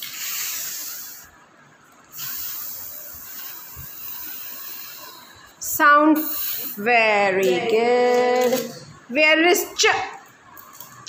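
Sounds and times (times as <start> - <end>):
long hissing shh: 0.0 - 1.3, 2.1 - 5.5, 6.2 - 6.8.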